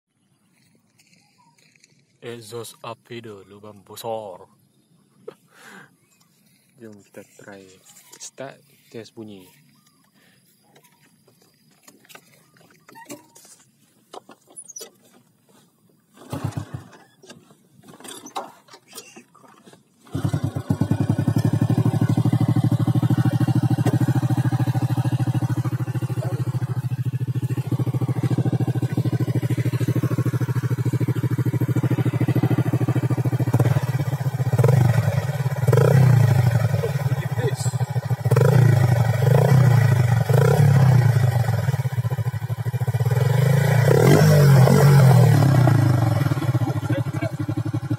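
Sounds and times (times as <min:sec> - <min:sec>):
motorcycle engine idling: 0:20.0 - 0:47.9.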